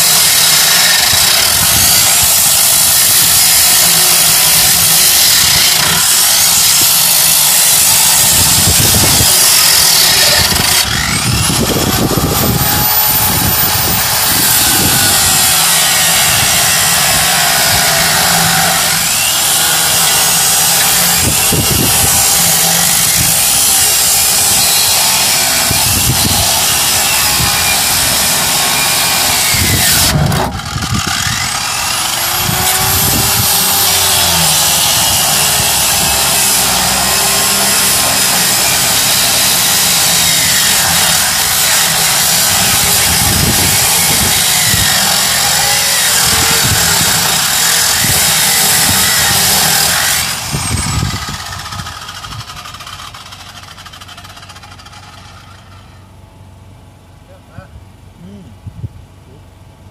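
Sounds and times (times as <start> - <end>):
power tool cutting steel: 0.0 - 56.1.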